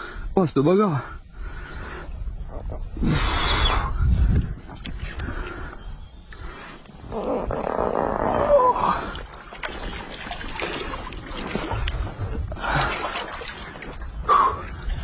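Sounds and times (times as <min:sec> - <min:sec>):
fish thrashing and water splashing: 0:08.8 - 0:15.0.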